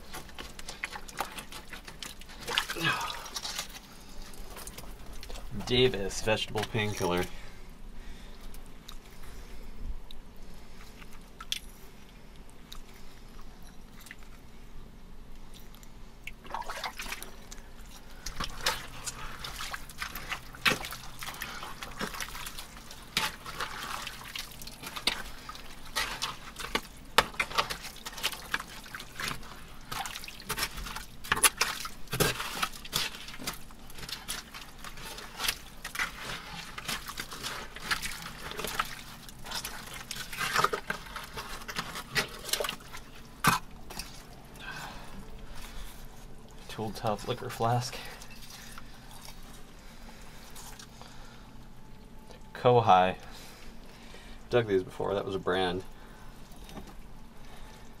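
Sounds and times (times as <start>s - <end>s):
digging clicks and scrapes: 0.0s - 7.3s, 17.1s - 44.7s.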